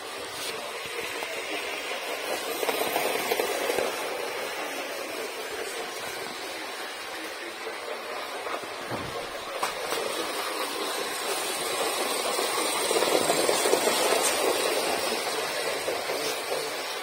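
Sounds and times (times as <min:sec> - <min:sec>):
model train motor running: 0:00.0 - 0:17.0
wheels rumbling on rails: 0:00.0 - 0:17.0.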